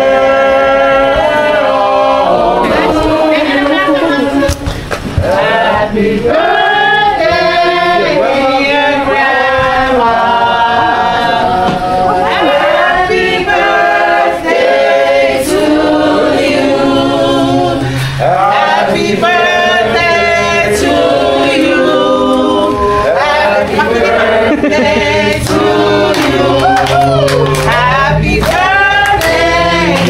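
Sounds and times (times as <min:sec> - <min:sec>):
group singing unaccompanied: 0:00.0 - 0:30.0.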